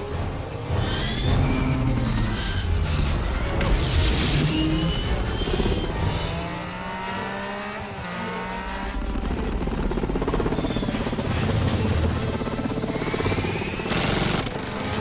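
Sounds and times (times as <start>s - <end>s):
dramatic music: 0.0s - 15.0s
vehicle engine revving: 5.8s - 9.2s.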